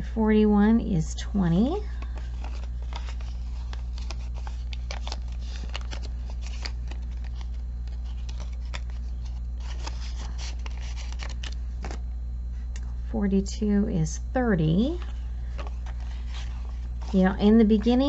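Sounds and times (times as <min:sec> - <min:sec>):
low electrical hum: 0:00.0 - 0:18.0
paper crinkling and rustling: 0:02.0 - 0:12.6, 0:14.9 - 0:18.0.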